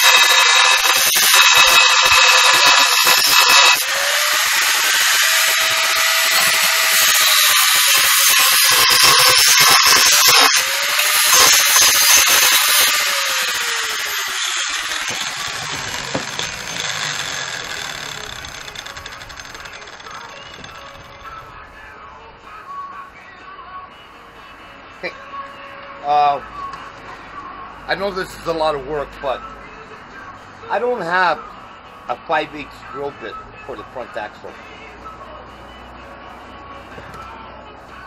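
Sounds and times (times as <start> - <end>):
angle grinder cutting steel: 0.0 - 21.4.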